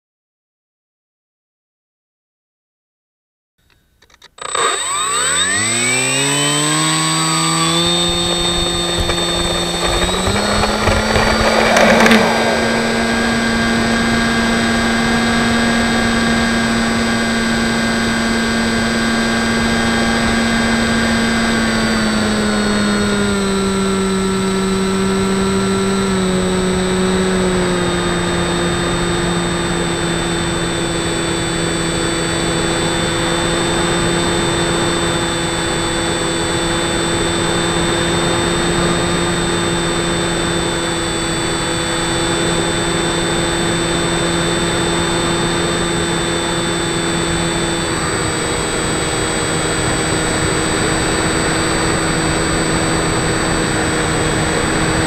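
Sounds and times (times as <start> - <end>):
model plane motor whining: 4.0 - 55.0
short rushing noise: 7.8 - 14.3.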